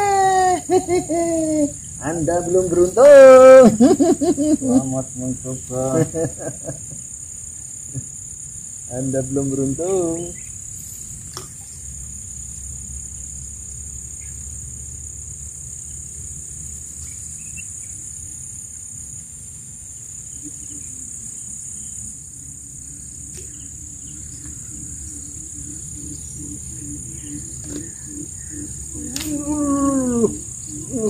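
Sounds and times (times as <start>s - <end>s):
high-pitched insect chorus: 0.0s - 31.0s
low pulsing call: 20.3s - 31.0s.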